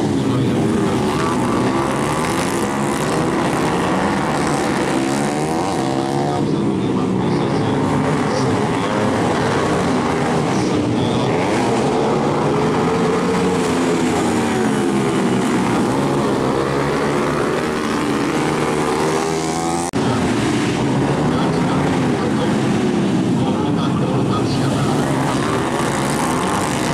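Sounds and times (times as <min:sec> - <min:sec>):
motorcycle engines revving: 0:00.0 - 0:26.9.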